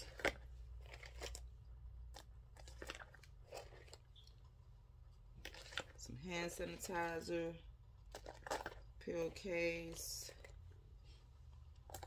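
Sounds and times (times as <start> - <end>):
small items clicking and rustling: 0.0 - 4.5, 5.4 - 7.3, 8.0 - 10.6
low steady hum: 0.0 - 12.0.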